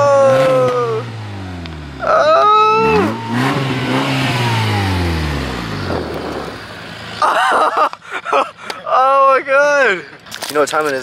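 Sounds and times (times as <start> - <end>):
person exclaiming: 0.0 - 1.2, 2.0 - 3.3
engine revving: 0.0 - 7.3.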